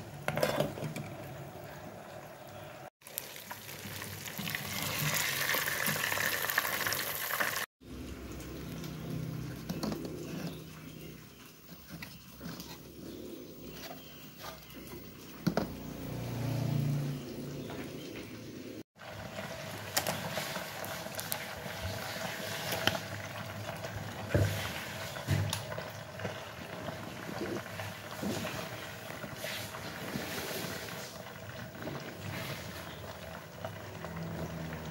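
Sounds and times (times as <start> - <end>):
oil sizzling around frying fish: 0.0 - 12.4, 19.0 - 34.9
hot oil hissing and popping: 3.0 - 7.7, 19.0 - 34.9.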